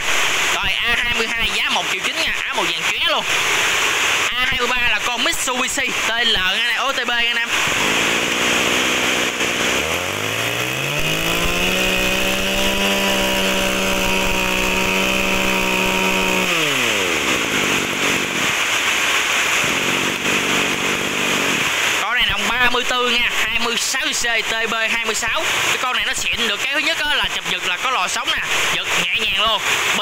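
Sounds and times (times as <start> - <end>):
brush cutter engine revving: 2.4 - 23.4.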